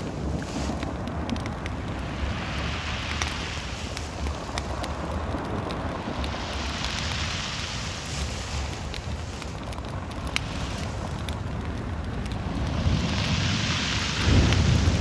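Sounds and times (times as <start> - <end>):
light ticks: 0.0 - 1.9, 3.0 - 7.2, 8.6 - 12.4
wind hissing: 0.0 - 11.6, 12.2 - 15.0
wind buffeting microphone: 0.0 - 15.0.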